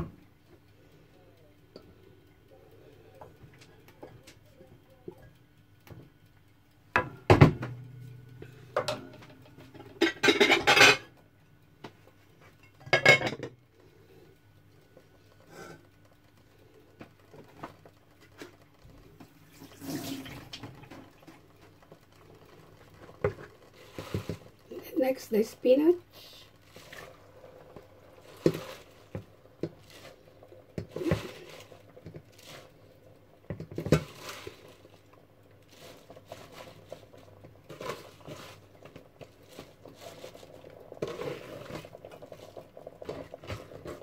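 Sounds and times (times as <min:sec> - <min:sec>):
pots and utensils clattering: 0:08.7 - 0:11.1, 0:12.6 - 0:13.6, 0:28.2 - 0:30.1, 0:30.7 - 0:32.7, 0:33.5 - 0:35.0.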